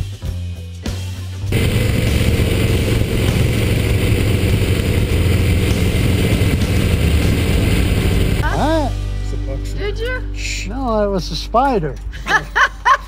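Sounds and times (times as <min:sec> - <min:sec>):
wind rush on microphone: 0:01.5 - 0:08.4
motorcycle engine drone: 0:01.5 - 0:08.6.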